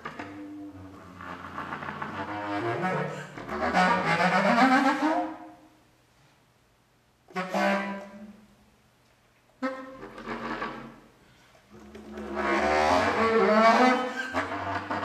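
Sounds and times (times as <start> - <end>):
contrabass clarinet playing: 0.0 - 5.6, 7.3 - 8.4, 9.6 - 11.0, 11.7 - 15.0.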